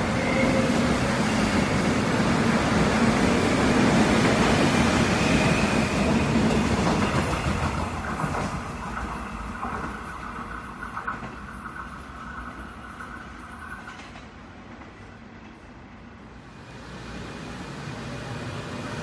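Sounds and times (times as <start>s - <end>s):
train wheels clacking on rails: 0.0s - 15.0s.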